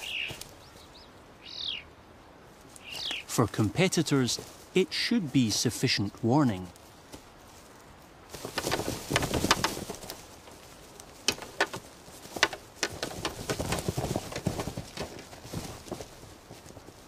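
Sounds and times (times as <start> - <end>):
deer cooing calls: 0.0 - 0.4
hooves clicking on ground: 0.0 - 1.0, 2.4 - 17.0.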